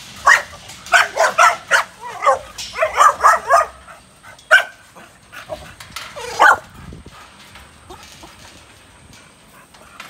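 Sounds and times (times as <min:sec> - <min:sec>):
dog barking: 0:00.2 - 0:03.8, 0:04.5 - 0:04.7, 0:06.2 - 0:06.6.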